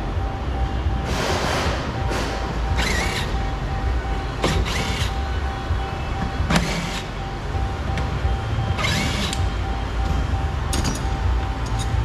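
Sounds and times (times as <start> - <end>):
low shop hum: 0.0 - 12.0
power driver whirring: 2.0 - 3.5, 4.4 - 5.2, 8.7 - 9.5.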